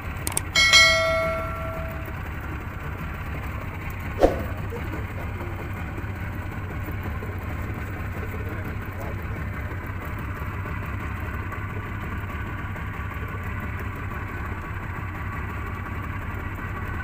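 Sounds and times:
outboard motor running: 0.0s - 17.0s
metallic clang: 0.3s - 2.2s.

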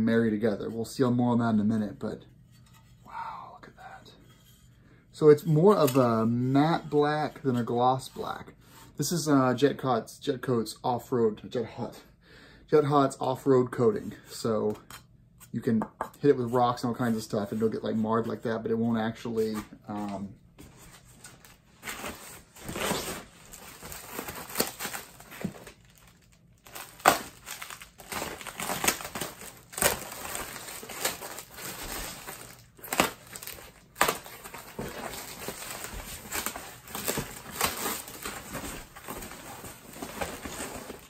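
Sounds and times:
packing material crinkling: 21.1s - 41.0s.

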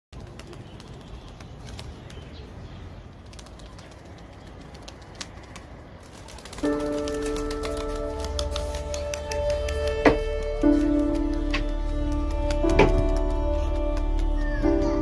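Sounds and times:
pigeon wings flapping: 0.2s - 2.4s, 3.1s - 14.9s
music with held notes: 6.6s - 15.0s.

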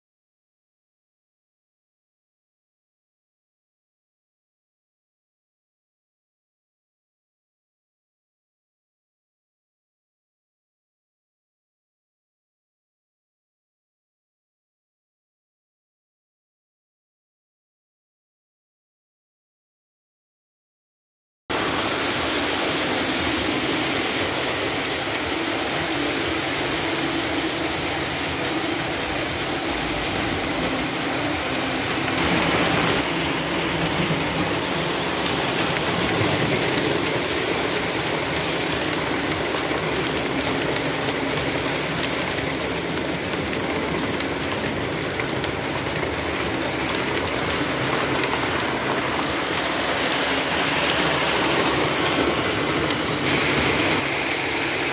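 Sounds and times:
toy trains rattling on track: 21.5s - 54.9s.

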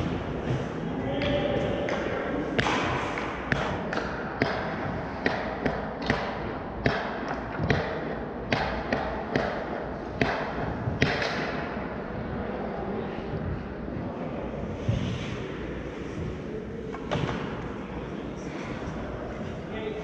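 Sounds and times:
pucks striking sticks and boards: 0.0s - 11.8s, 14.8s - 17.8s.

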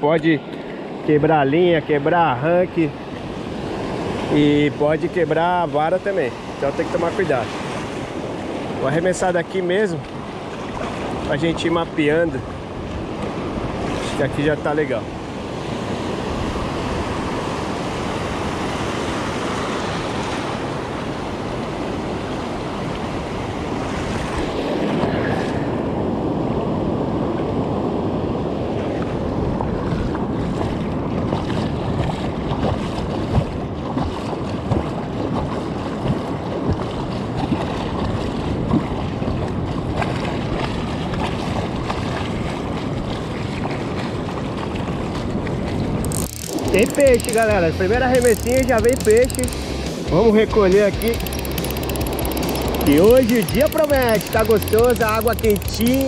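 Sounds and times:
ocean surf washing onto beach: 0.0s - 33.0s
light clicks and taps: 46.1s - 49.6s, 51.0s - 56.0s.

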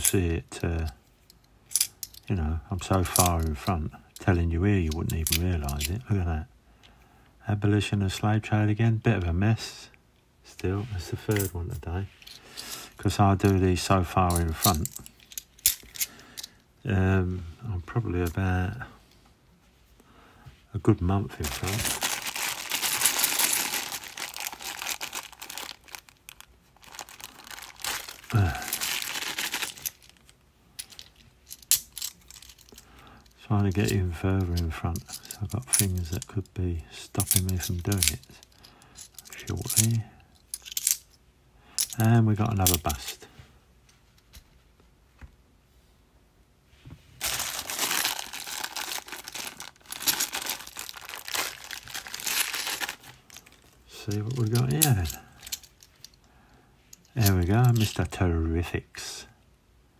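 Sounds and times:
plastic coin bag crinkling: 21.3s - 33.0s, 47.2s - 56.2s, 57.0s - 58.1s.

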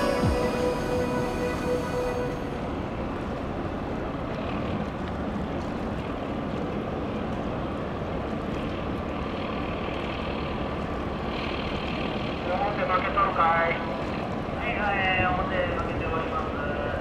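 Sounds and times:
boat engines rumbling: 0.0s - 17.0s
wind and water hiss: 0.0s - 17.0s.

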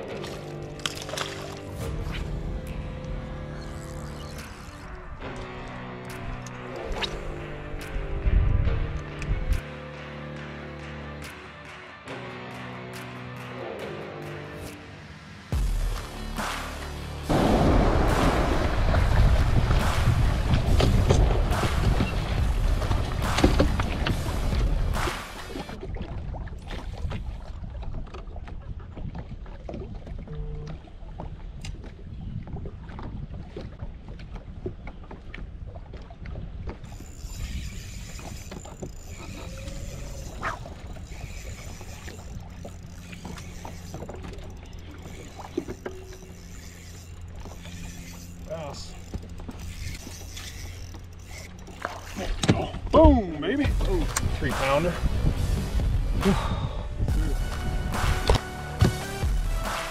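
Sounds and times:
background music: 0.0s - 25.7s, 53.0s - 59.9s
water lapping against boat hull: 18.8s - 59.9s.

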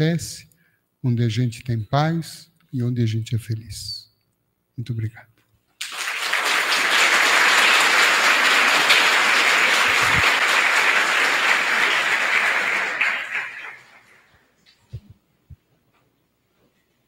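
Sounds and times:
audience applauding: 5.8s - 14.4s.

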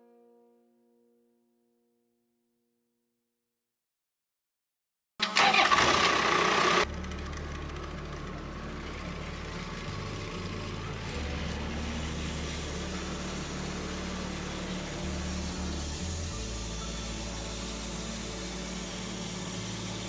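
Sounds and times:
loud harsh noise: 5.2s - 20.0s
sawmill engine running: 5.2s - 20.0s.

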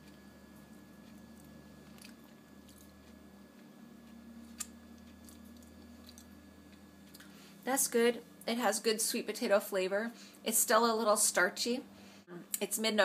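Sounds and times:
person chewing: 0.0s - 7.3s.

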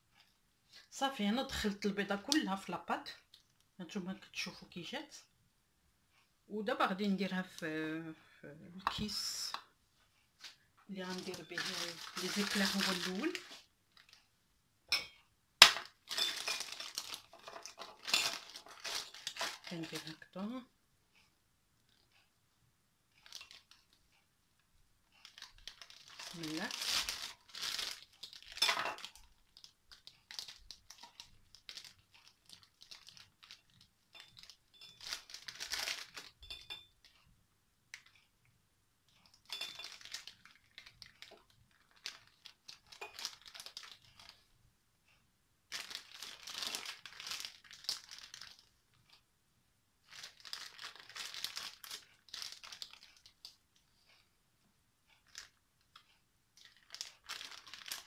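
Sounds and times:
plastic piping bag crinkling: 10.4s - 14.3s, 15.6s - 20.6s, 23.1s - 24.0s, 25.2s - 37.2s, 39.3s - 44.5s, 45.7s - 49.2s, 50.0s - 53.6s, 55.2s - 58.0s.

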